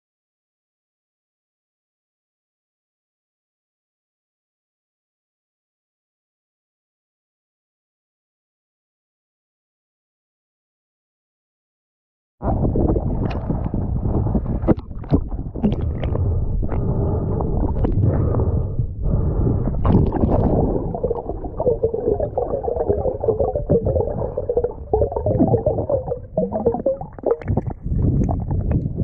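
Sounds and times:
muffled underwater rumbling: 12.4s - 29.0s
water sloshing and gurgling: 12.4s - 29.0s.

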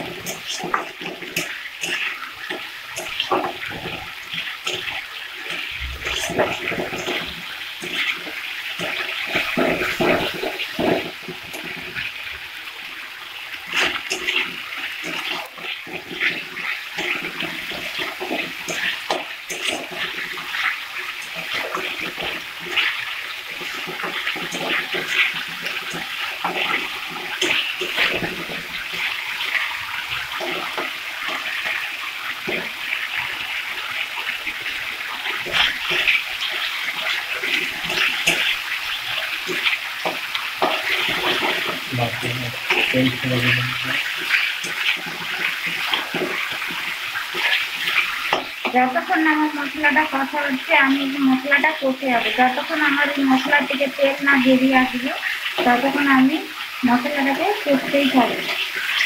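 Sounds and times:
spatula scraping metal pan: 0.0s - 12.0s, 13.6s - 33.0s
paste sizzling in hot oil: 0.0s - 59.0s.

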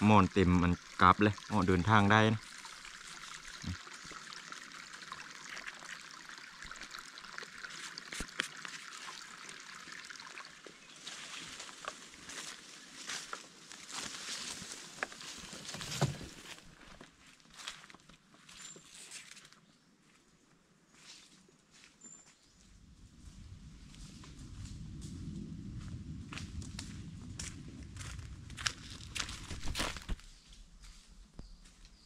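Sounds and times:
stream trickling over rock: 0.0s - 17.8s, 25.8s - 30.3s
footsteps in dry leaves: 11.0s - 19.5s, 24.8s - 31.3s.

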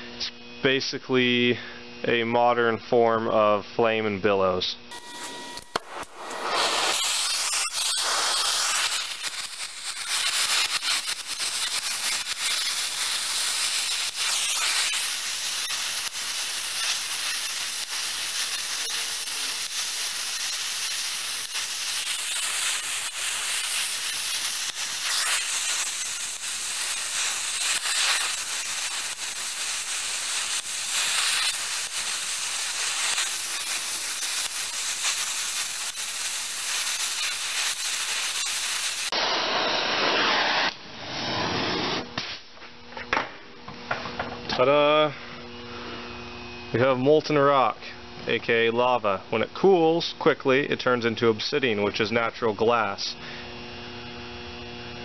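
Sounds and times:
torch flame hissing: 4.9s - 42.1s.

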